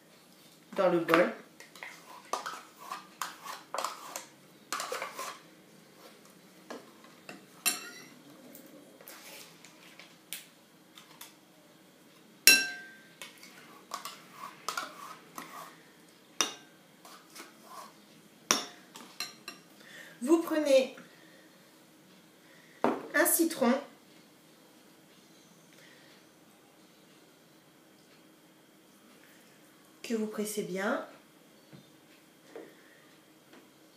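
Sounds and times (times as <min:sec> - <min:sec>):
metal spoon clinking and scraping: 0:01.8 - 0:05.4, 0:07.3 - 0:08.1, 0:12.5 - 0:15.7
spoon clinking on glass: 0:07.3 - 0:08.1, 0:12.5 - 0:13.0.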